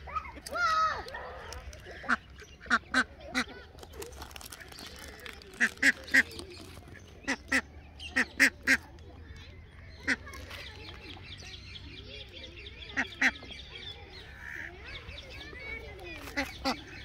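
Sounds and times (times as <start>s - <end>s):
ducks quacking: 1.1s - 3.7s, 4.5s - 9.0s, 9.9s - 10.9s, 12.8s - 17.0s.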